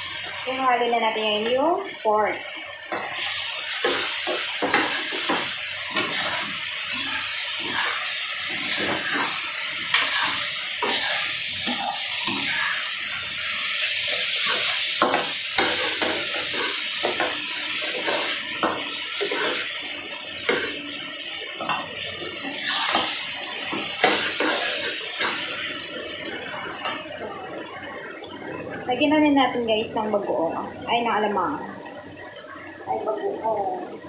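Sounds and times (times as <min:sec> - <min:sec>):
meat sizzling in a wok: 0:00.0 - 0:28.6
spatula scraping a pan: 0:02.9 - 0:19.8, 0:21.6 - 0:25.7.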